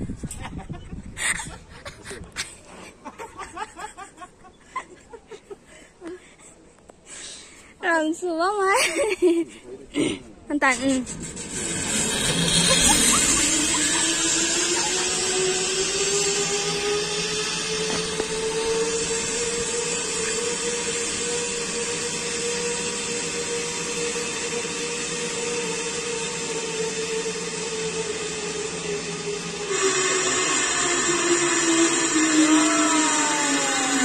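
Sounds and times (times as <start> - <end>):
zipline pulleys whirring on cable: 10.6 - 34.0.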